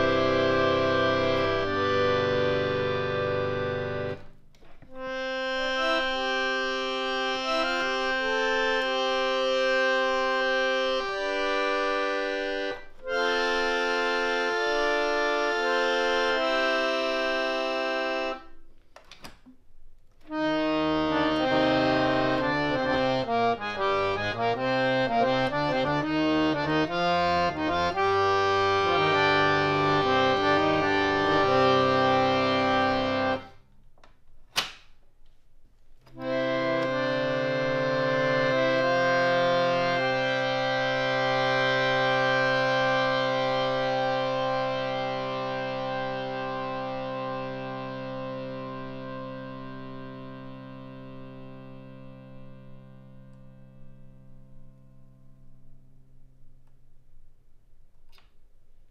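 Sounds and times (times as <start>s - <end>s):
harmonium playing chords: 0.0s - 18.9s, 20.2s - 33.7s, 36.1s - 56.7s
click: 18.8s - 20.4s, 36.0s - 37.0s, 57.9s - 58.4s.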